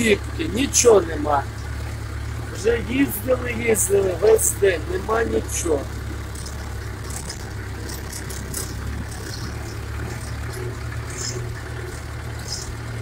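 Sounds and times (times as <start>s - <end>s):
light rattles: 0.0s - 13.0s
tractor diesel engine running: 0.0s - 13.0s.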